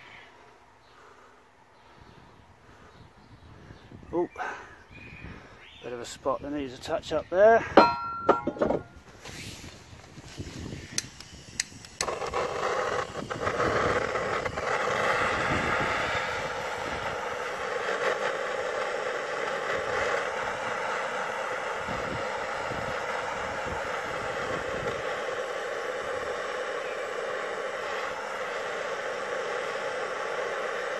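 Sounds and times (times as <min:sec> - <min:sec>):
gas torch hissing: 0:07.8 - 0:30.9
gas torch clicks: 0:09.3 - 0:30.9.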